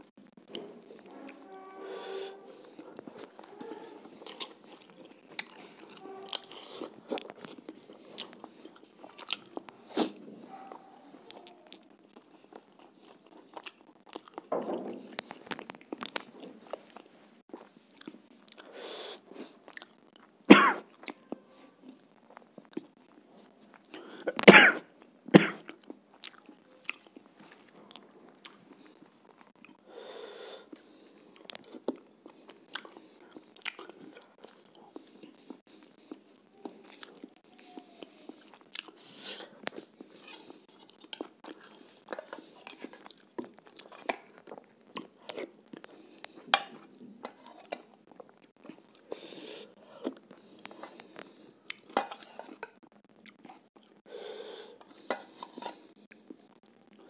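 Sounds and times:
person chewing food: 0:00.2 - 0:57.0
person coughing: 0:20.5 - 0:20.9, 0:24.3 - 0:25.7.

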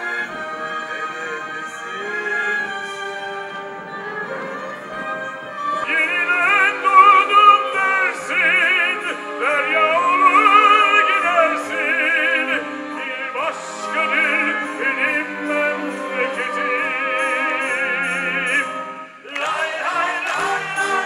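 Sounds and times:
string orchestra: 0:00.0 - 0:21.0
tenors singing operatically: 0:00.0 - 0:21.0.

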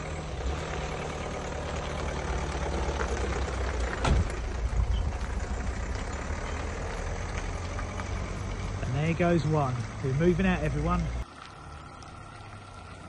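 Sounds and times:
van engine driving off: 0:00.0 - 0:13.0
thud: 0:04.0 - 0:04.4.

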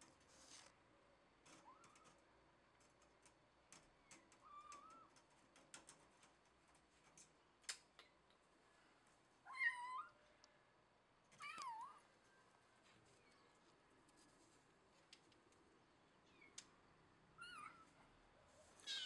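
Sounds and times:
faint clicks: 0:01.4 - 0:08.4.

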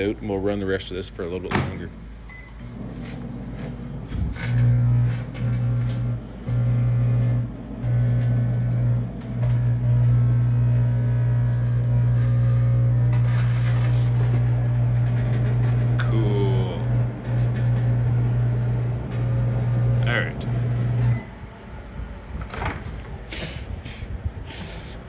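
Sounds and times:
microwave oven hum: 0:00.0 - 0:25.0
metal arcing and crackling: 0:03.0 - 0:21.2.

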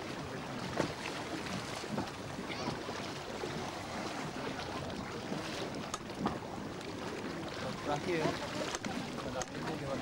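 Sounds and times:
faint voices: 0:02.3 - 0:10.0.

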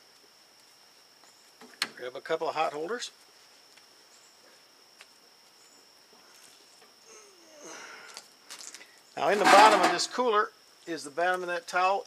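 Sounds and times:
handling rustles and knocks: 0:09.3 - 0:10.2.

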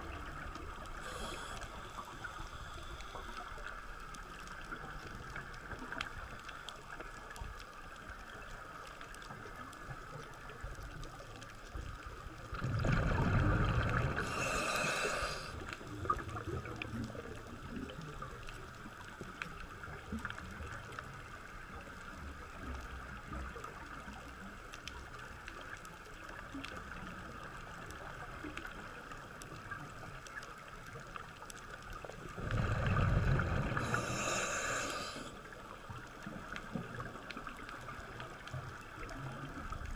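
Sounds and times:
steady hiss: 0:00.3 - 0:04.7, 0:13.7 - 0:16.0, 0:32.6 - 0:36.0
scuba diver breathing underwater: 0:01.0 - 0:03.6, 0:12.7 - 0:15.7, 0:32.4 - 0:35.4
exhaled bubbles from regulator: 0:12.5 - 0:16.6, 0:32.3 - 0:35.4.

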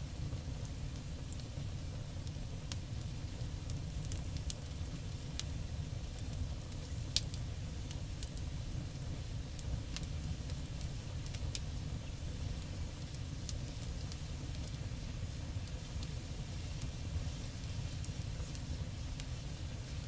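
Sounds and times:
faint crackling ticks of hot oil: 0:00.0 - 0:20.0.

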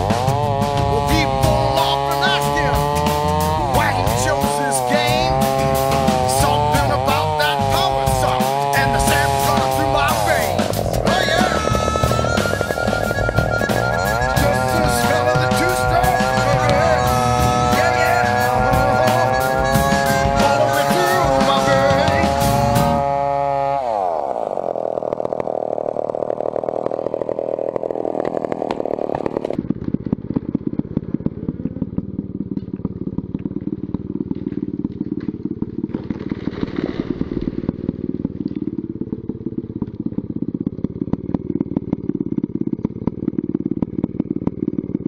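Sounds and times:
chainsaw idling and revving: 0:00.0 - 0:45.0
falling whine: 0:07.8 - 0:39.1.

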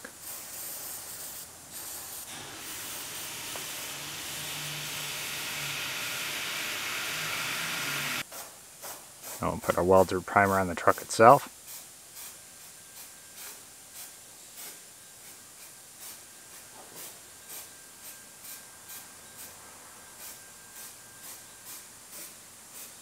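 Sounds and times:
aerosol spray hissing: 0:00.1 - 0:08.2.

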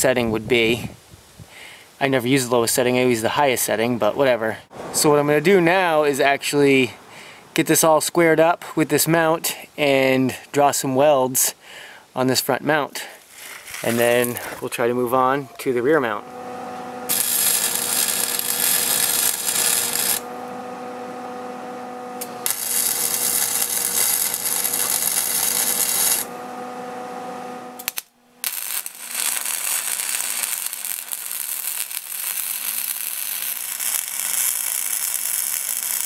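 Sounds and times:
welding arc crackling and hissing: 0:13.2 - 0:14.5, 0:16.2 - 0:26.3, 0:27.4 - 0:36.0
steady hum: 0:15.6 - 0:30.5.

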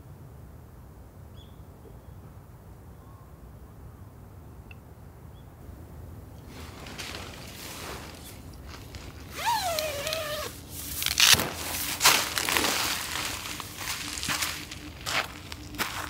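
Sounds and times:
short rustling noises: 0:06.4 - 0:15.8.

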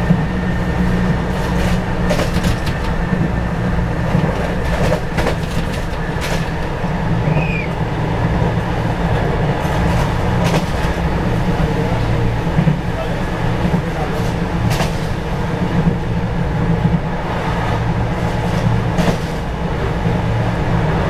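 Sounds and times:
electric train rumbling: 0:00.0 - 0:21.0
wheels clicking over rails: 0:00.8 - 0:07.7, 0:08.8 - 0:17.1.

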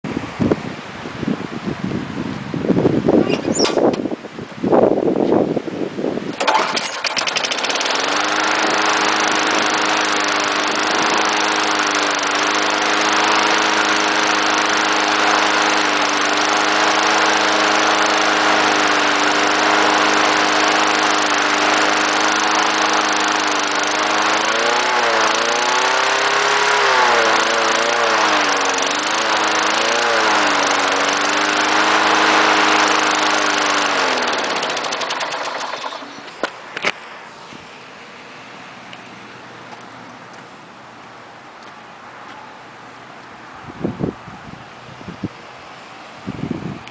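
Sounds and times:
lawn mower engine running: 0:06.2 - 0:37.4.

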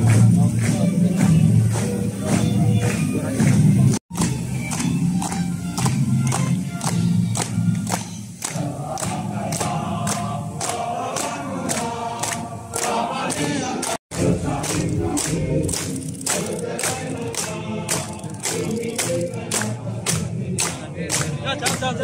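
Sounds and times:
clapping in time: 0:00.0 - 0:22.0
group of soldiers singing: 0:08.4 - 0:22.0.

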